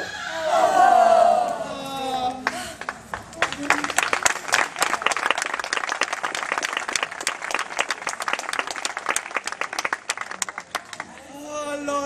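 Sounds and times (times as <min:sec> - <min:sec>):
audience applauding: 0:02.4 - 0:11.3
close hand claps: 0:02.4 - 0:11.3.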